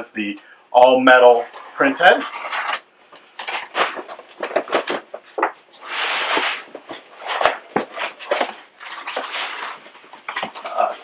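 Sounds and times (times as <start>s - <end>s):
rasp of cardboard or tape: 1.6s - 2.8s, 5.8s - 10.0s.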